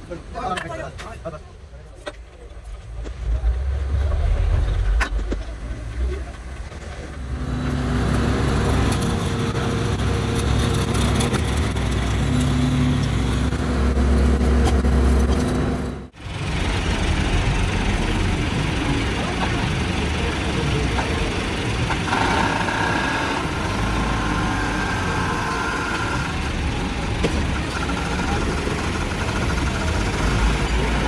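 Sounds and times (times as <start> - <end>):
diesel engine deep rumble: 1.6 - 31.0.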